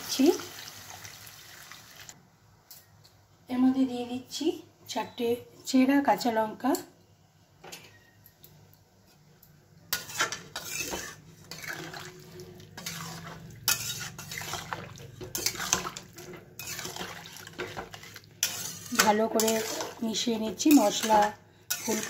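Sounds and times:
spatula scraping and clinking pan: 9.9 - 22.0.

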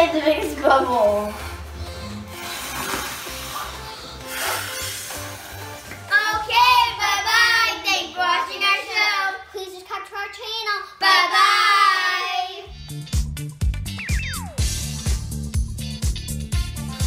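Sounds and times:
music with a steady beat: 12.7 - 17.0.

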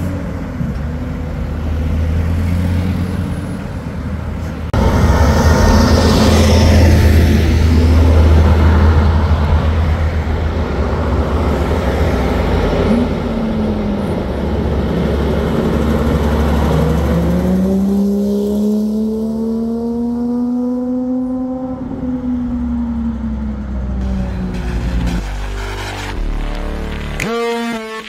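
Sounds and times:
road traffic rumble: 0.0 - 28.0
truck diesel engine accelerating: 0.0 - 28.0.

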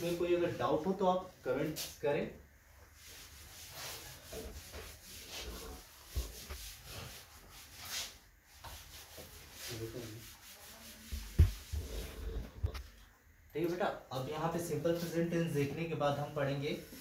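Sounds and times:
board duster rubbing on chalkboard: 2.9 - 12.4, 14.8 - 15.6.

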